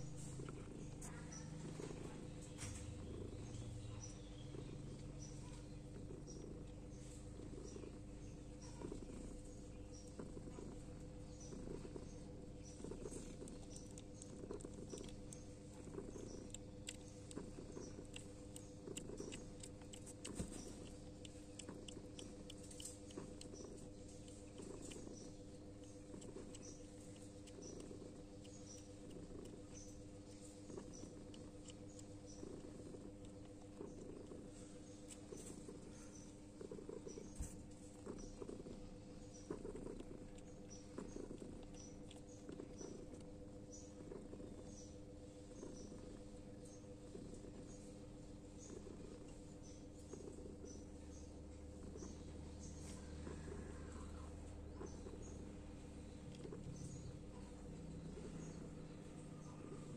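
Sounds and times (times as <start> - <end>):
kittens suckling: 0.0 - 59.9.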